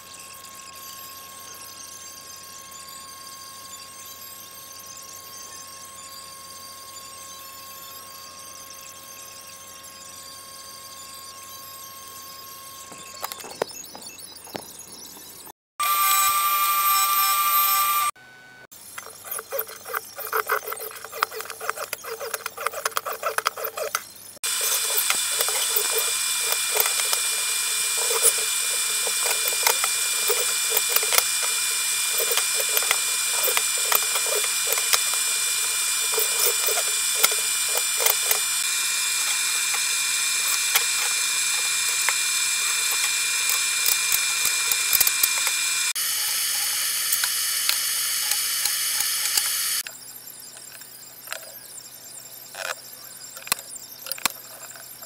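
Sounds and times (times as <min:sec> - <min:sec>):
machine motor whining: 0:15.8 - 0:18.2, 0:19.0 - 0:49.9.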